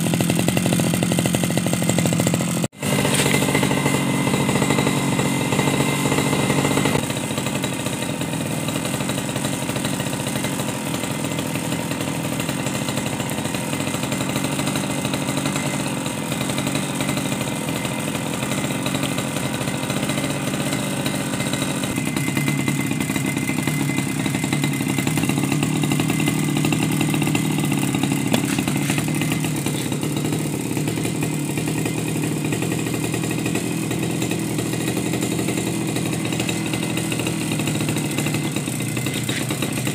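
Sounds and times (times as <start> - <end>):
grass trimmer engine idling: 0.0 - 39.9.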